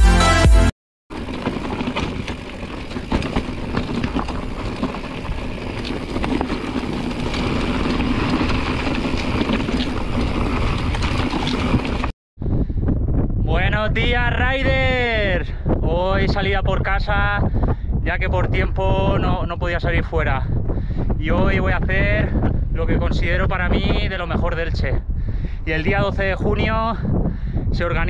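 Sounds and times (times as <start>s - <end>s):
bike rattling and knocking: 1.1s - 12.1s
bike tyres on rocky trail: 1.1s - 12.1s.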